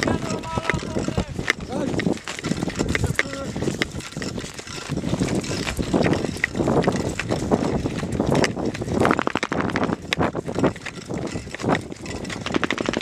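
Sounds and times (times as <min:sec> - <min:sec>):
carried gear clattering: 0:00.0 - 0:13.0
footsteps on dry ground: 0:00.0 - 0:13.0
wind on microphone: 0:00.0 - 0:13.0.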